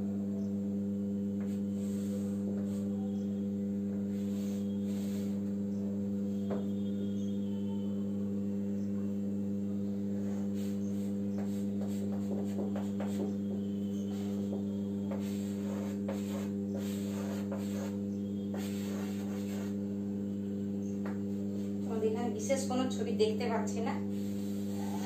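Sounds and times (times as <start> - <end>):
steady electrical hum: 0.0 - 25.0
chalk scratching on chalkboard: 1.4 - 3.1, 4.1 - 5.4, 10.2 - 19.9.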